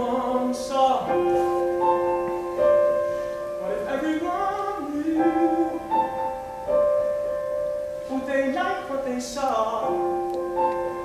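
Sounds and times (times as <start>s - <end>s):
piano: 0.0s - 11.0s.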